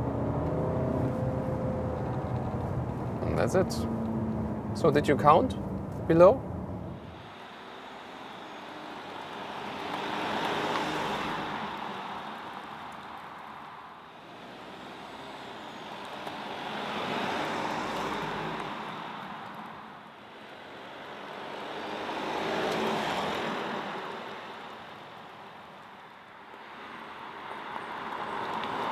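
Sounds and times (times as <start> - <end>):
car engine passing by: 0.0 - 25.1.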